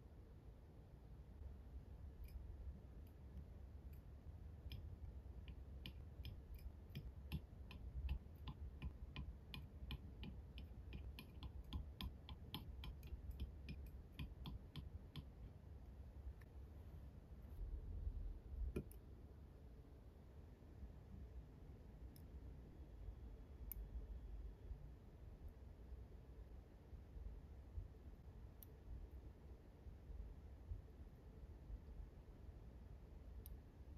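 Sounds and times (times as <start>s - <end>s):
tweezers clicking on metal plate: 2.2s - 15.4s.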